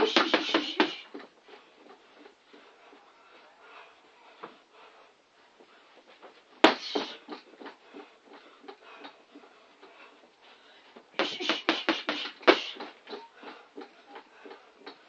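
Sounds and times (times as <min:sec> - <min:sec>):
gloves punching a punching bag: 0:00.0 - 0:01.2, 0:06.6 - 0:08.4, 0:11.2 - 0:13.9.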